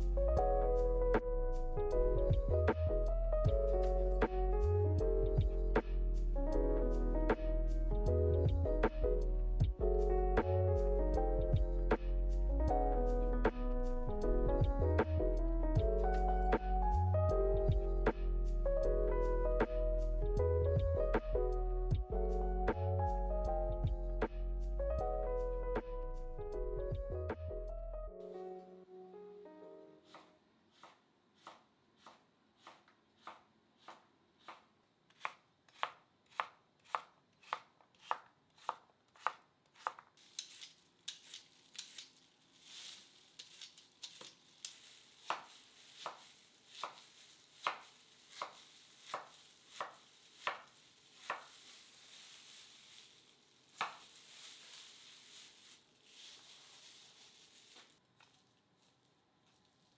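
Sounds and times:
peeler scraping vegetable skin: 30.1 - 58.4.

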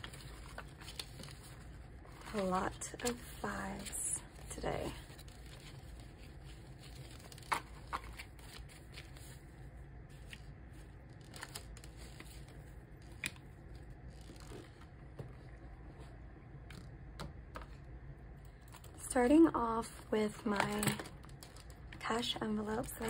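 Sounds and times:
banknotes rustling and flicking: 0.0 - 16.1.

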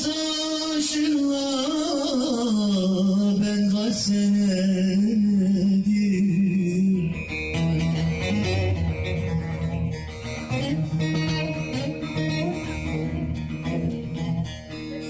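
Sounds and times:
plucked long-necked lute melody: 5.4 - 15.0.

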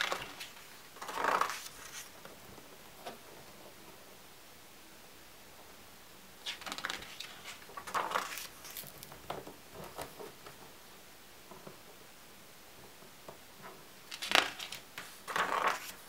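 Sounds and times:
book page turning: 0.0 - 2.2, 6.5 - 9.2, 14.1 - 16.0.

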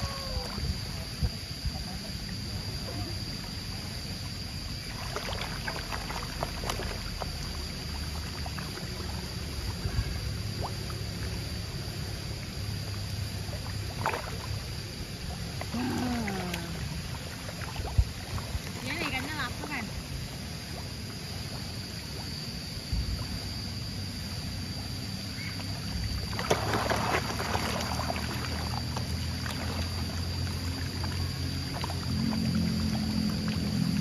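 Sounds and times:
fish churning water: 4.5 - 22.4, 25.9 - 34.0
sharp water splashes: 26.3 - 30.2.

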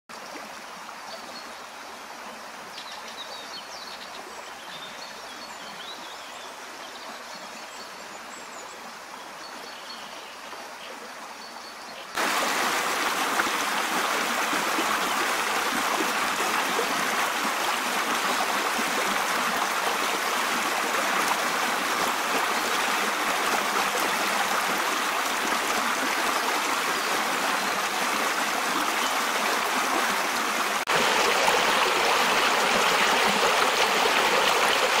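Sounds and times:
fast water rushing over stones: 12.2 - 35.0
water trickling: 12.2 - 35.0.

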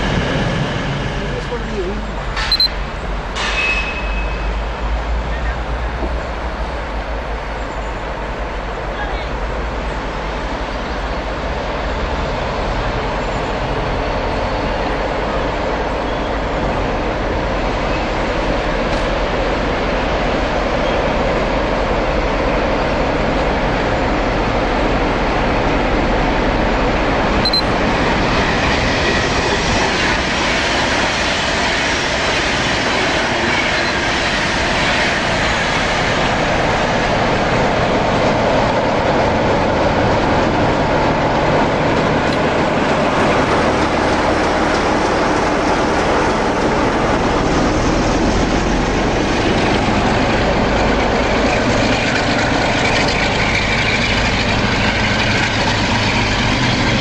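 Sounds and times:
diesel locomotive engines: 0.0 - 57.0
wheels clattering over rails: 36.6 - 57.0.

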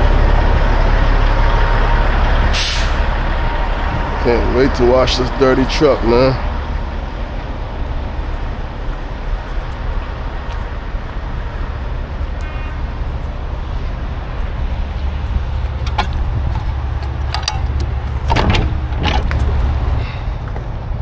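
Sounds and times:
steady low rumble: 0.0 - 21.0
metal door latch clanking: 15.8 - 19.9.

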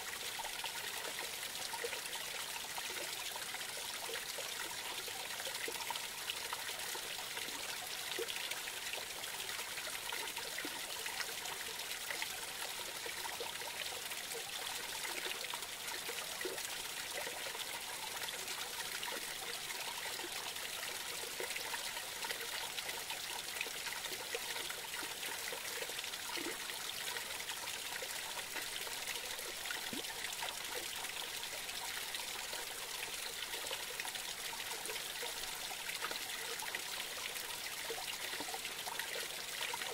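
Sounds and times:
creek trickling and splashing: 0.0 - 39.9.

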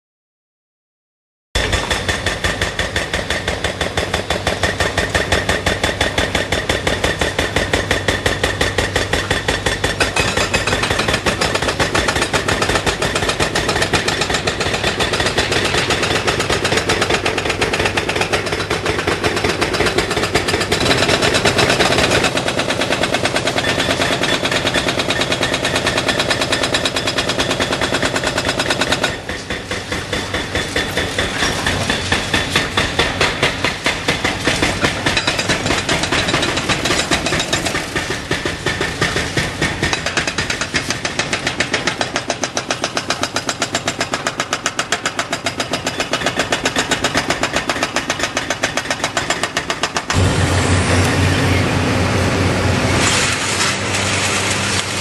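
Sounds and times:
hydraulic breaker hammering concrete: 1.6 - 51.2
diesel engine running: 50.1 - 55.0.

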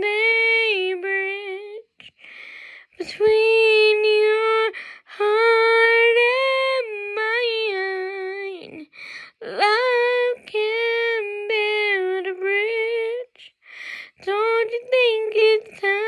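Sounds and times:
woman singing unaccompanied: 0.0 - 16.0
singer breathing: 2.0 - 3.0, 4.7 - 5.1, 8.9 - 9.4, 13.5 - 14.2.

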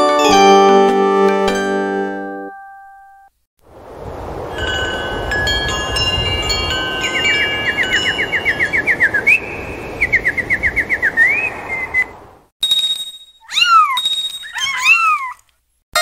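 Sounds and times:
ringing chime tones: 4.6 - 8.4, 12.6 - 14.8
bird-like chirps and trills: 6.4 - 12.2.

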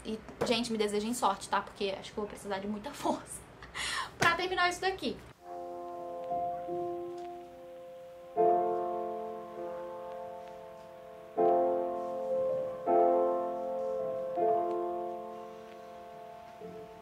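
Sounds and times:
soft piano chords: 5.4 - 17.0.

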